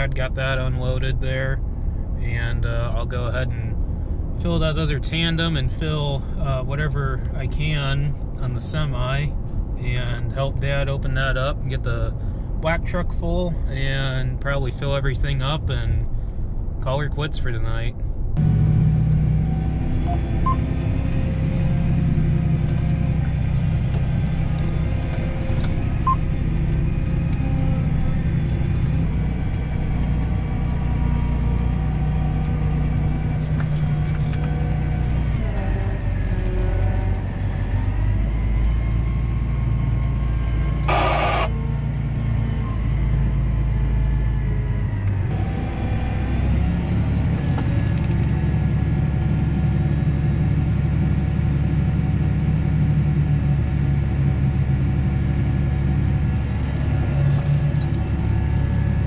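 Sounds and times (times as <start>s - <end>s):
tractor engine running: 18.4s - 59.0s
short high-pitched tone: 40.9s - 41.6s.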